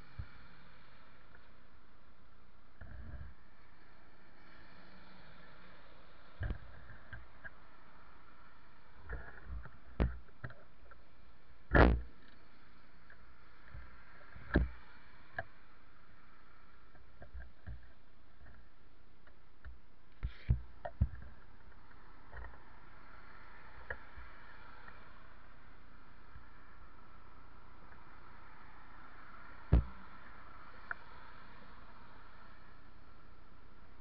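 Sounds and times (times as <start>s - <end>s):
camera microphone hiss: 0.0s - 34.0s
muffled thumps and knocks: 9.1s - 10.6s, 11.7s - 12.1s, 14.4s - 14.7s, 19.6s - 21.4s, 29.7s - 30.0s.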